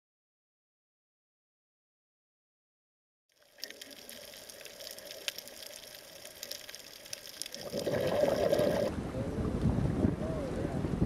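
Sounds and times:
faint underwater hiss: 0:03.4 - 0:08.9
sharp clicks and crackles: 0:03.4 - 0:08.9.

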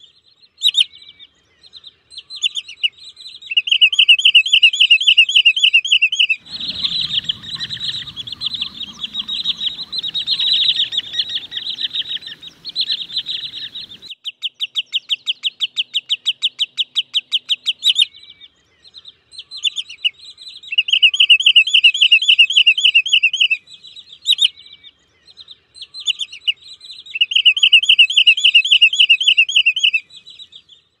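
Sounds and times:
low rumble: 0:06.4 - 0:14.0
sandpiper piping calls: 0:06.4 - 0:14.1.

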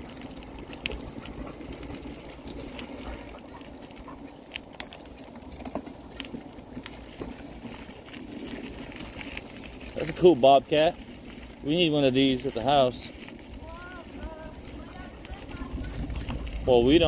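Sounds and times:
bicycle clicks and rattles: 0:00.0 - 0:17.0
bicycle tyres on gravel: 0:00.0 - 0:17.0.

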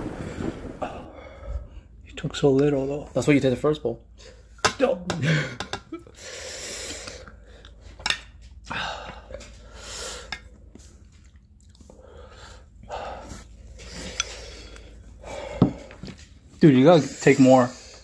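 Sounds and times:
noodles being chewed: 0:10.4 - 0:15.1.

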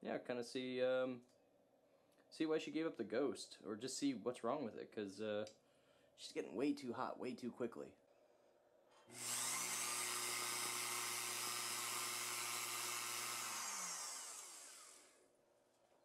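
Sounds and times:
electric motor hum: 0:09.1 - 0:15.2.

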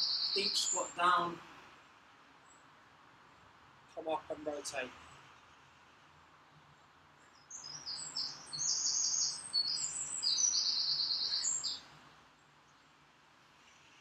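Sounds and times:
songbird singing high trills: 0:00.0 - 0:01.2, 0:07.4 - 0:11.9.

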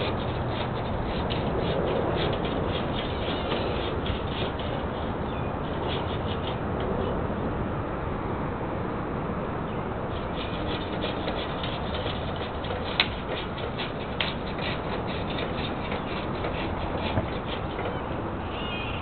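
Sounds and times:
outdoor background noise: 0:00.0 - 0:19.0.

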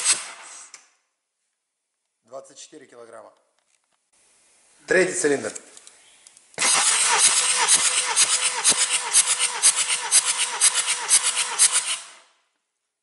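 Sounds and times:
diesel engine cranking: 0:06.6 - 0:12.2.

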